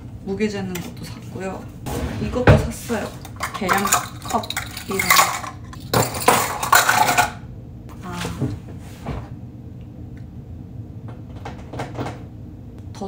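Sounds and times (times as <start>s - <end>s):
kitchen utensils clattering: 1.9s - 7.4s.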